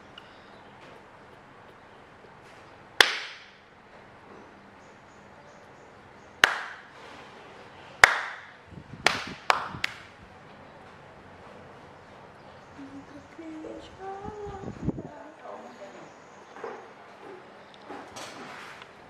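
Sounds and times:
sharp hand claps: 3.0 - 3.6, 6.4 - 6.9, 8.0 - 10.1.

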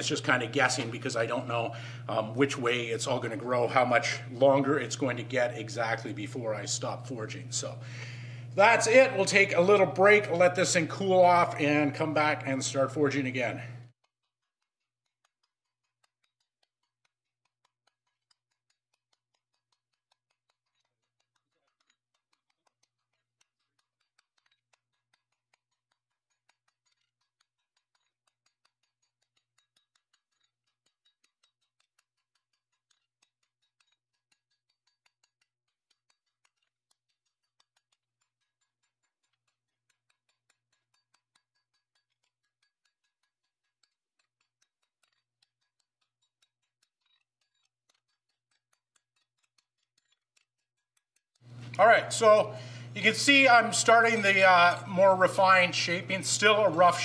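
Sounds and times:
low steady hum: 0.0 - 13.9, 51.5 - 57.0.

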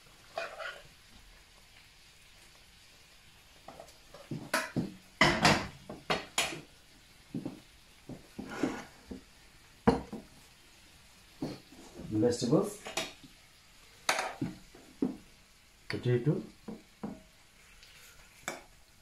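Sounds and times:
metal spoon scraping a pot: 0.4 - 0.8.

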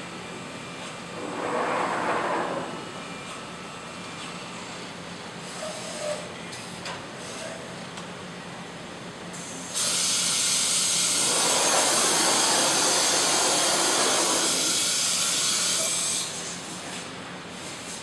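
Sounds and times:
loud hiss of rushing air: 1.1 - 2.9, 9.4 - 15.6.

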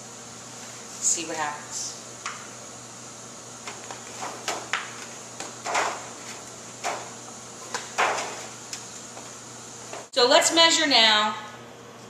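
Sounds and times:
foil pan knocking on plastic: 4.2 - 7.1.

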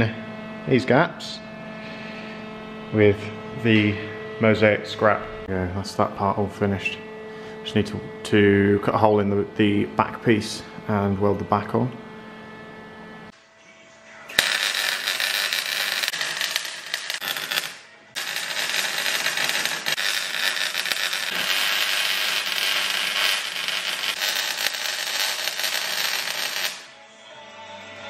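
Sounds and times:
welder crackling: 14.4 - 26.9.

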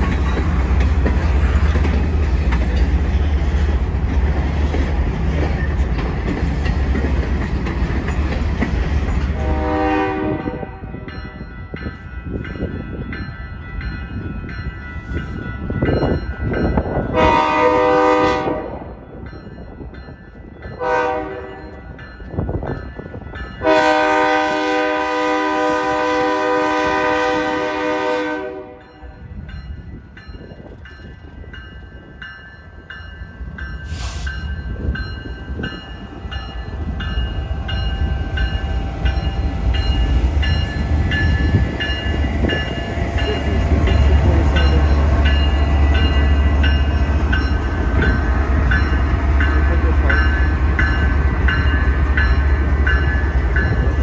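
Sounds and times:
wheels clicking over rail joints: 0.0 - 9.4
train rumble: 0.0 - 54.0
locomotive air horn blast: 9.4 - 10.9, 17.1 - 18.8, 20.8 - 21.6, 23.6 - 28.8.

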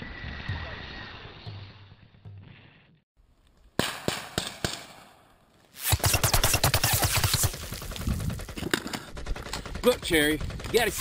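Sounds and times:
rifles firing blanks: 6.0 - 11.0.

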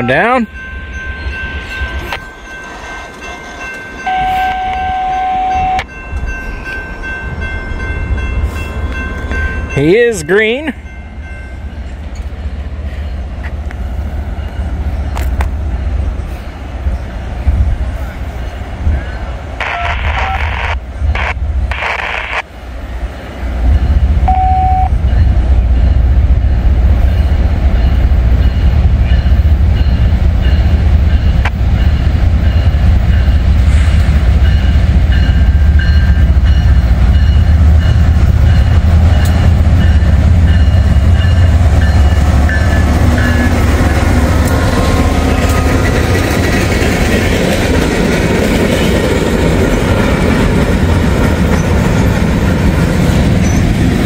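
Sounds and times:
crossing bell ringing: 0.0 - 17.2, 18.0 - 21.3, 23.1 - 49.5
diesel locomotive rumble: 0.0 - 54.0
train wheels clattering on rails: 25.2 - 54.0.

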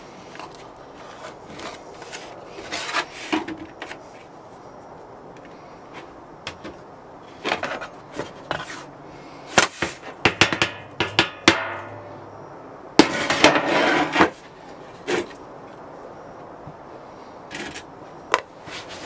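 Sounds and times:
plastic scraper knocking on metal tray: 10.2 - 11.8
metal tray ringing: 10.4 - 12.1
loud scrape on metal tray: 13.0 - 14.4.

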